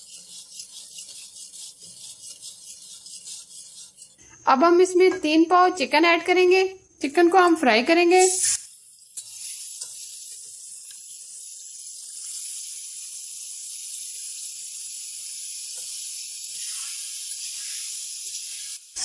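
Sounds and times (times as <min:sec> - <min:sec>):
chicken sizzling in hot oil: 0:08.2 - 0:19.0.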